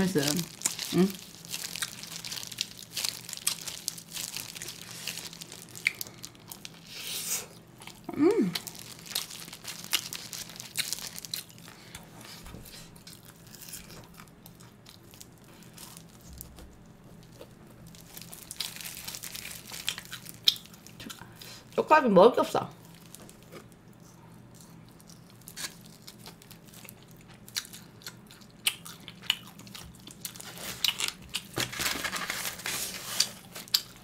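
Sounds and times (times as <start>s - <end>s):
plastic gloves crinkling: 0.0s - 21.8s, 22.4s - 24.0s, 24.8s - 27.8s, 29.6s - 34.0s
chewing on ribs: 0.5s - 6.8s, 7.6s - 21.5s, 22.9s - 31.6s, 33.1s - 34.0s
person humming: 0.9s - 1.2s, 8.0s - 8.7s.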